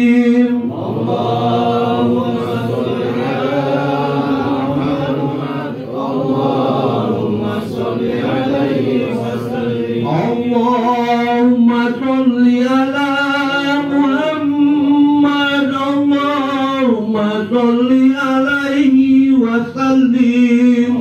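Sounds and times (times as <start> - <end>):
men chanting together: 0.0 - 21.0.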